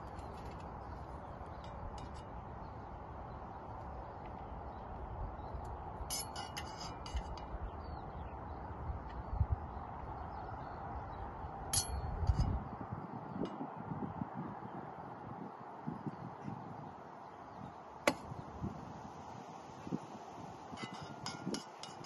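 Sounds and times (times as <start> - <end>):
wind rumble on microphone: 0.0 - 22.0
metal spoon clinking on pot: 11.8 - 12.1, 20.8 - 22.0.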